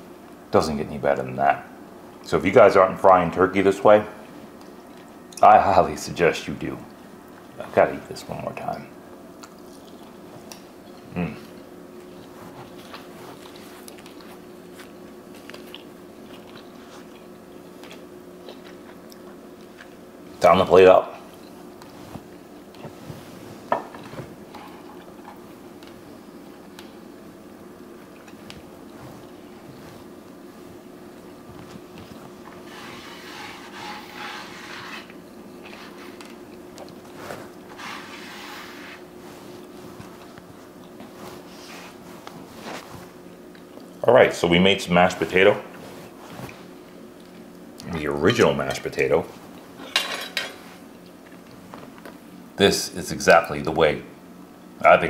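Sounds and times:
steady low hum: 0:00.0 - 0:55.0
person chewing crunchy food: 0:09.4 - 0:20.0, 0:27.9 - 0:30.5
soft rubbing and scraping: 0:21.8 - 0:24.4, 0:28.9 - 0:30.8, 0:31.5 - 0:36.3, 0:37.0 - 0:43.2, 0:45.1 - 0:46.8.

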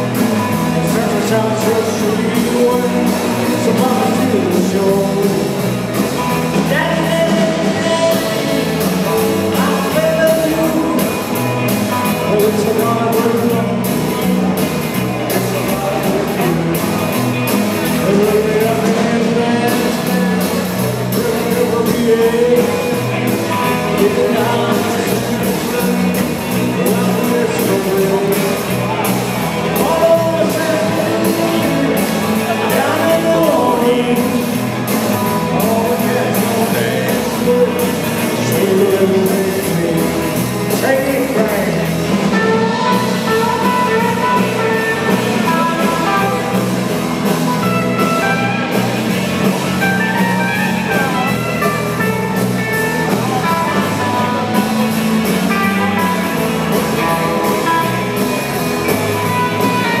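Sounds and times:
live rock band playing: 0:00.0 - 1:00.0
person singing: 0:00.0 - 1:00.0.

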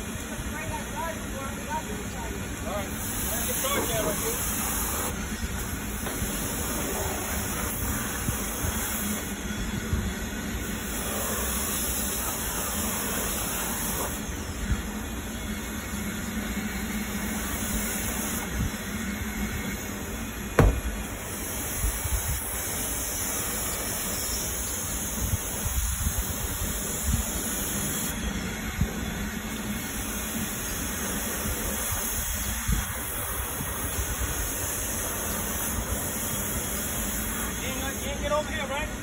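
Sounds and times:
pressure washer spraying water: 0:02.8 - 0:09.4, 0:10.6 - 0:14.5, 0:17.0 - 0:18.4, 0:19.8 - 0:28.1, 0:33.1 - 0:38.1
sharp knock: 0:20.6 - 0:21.0.

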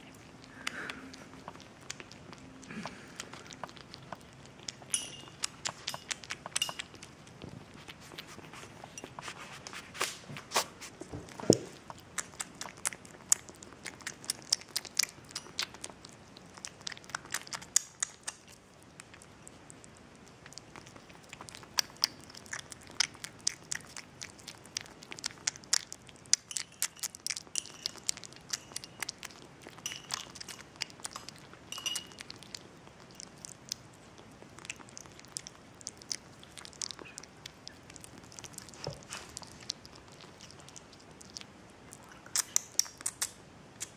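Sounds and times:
kitten chewing wet food: 0:00.0 - 0:43.9.

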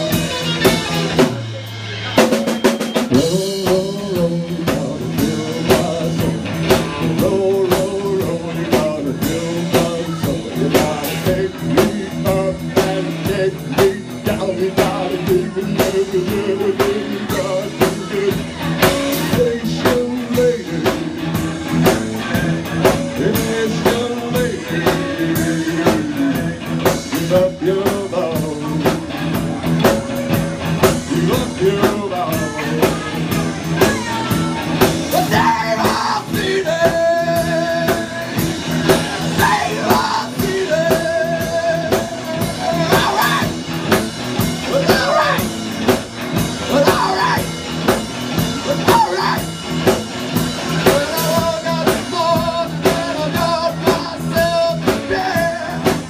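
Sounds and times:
blues-rock band playing: 0:00.0 - 0:56.0
person singing: 0:03.0 - 0:29.2, 0:30.8 - 0:43.9, 0:44.6 - 0:45.6, 0:46.6 - 0:47.7, 0:48.4 - 0:49.6, 0:50.7 - 0:56.0.

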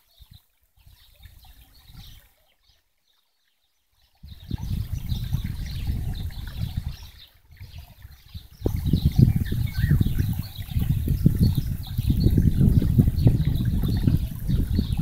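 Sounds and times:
wind gusting on microphone: 0:04.2 - 0:15.0.

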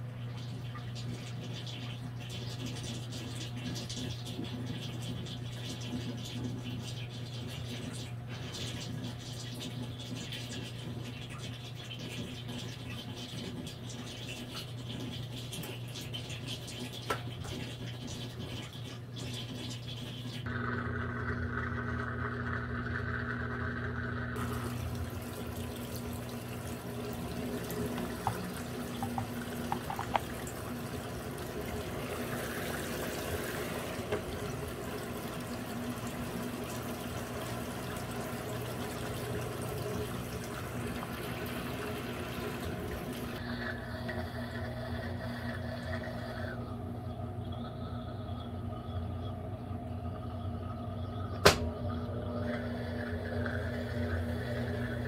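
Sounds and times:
electrical hum: 0:00.0 - 0:55.0
water sloshing in washing machine: 0:00.0 - 0:55.0.

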